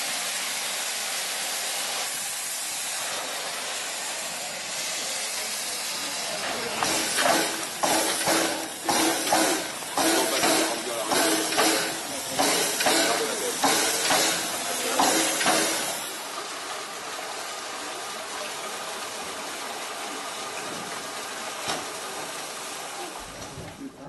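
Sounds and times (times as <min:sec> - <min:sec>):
voices: 0:04.4 - 0:16.8.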